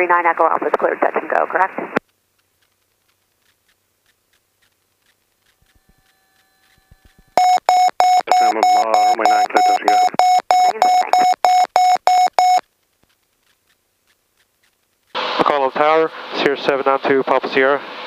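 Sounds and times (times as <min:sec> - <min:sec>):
electronic beeping tone: 0:05.6 - 0:12.6
muffled garbled voice: 0:08.3 - 0:10.2.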